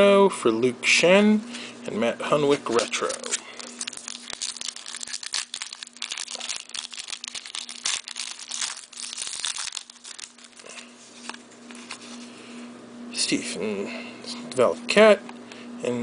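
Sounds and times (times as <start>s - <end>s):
plastic wrapper crinkling: 2.5s - 12.1s
cards rustling: 2.5s - 12.3s.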